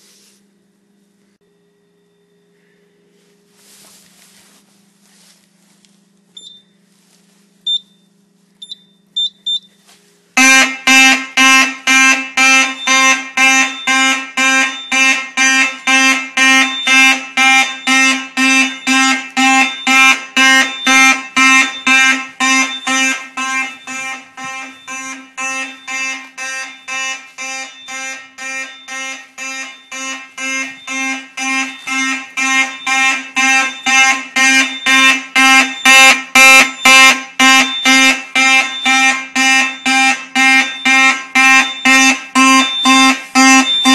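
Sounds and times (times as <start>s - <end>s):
low hum: 0.0s - 43.9s
short high beeps: 6.4s - 6.7s, 7.7s - 9.8s, 12.6s - 43.9s
fire alarm horns buzzing: 7.6s - 43.9s.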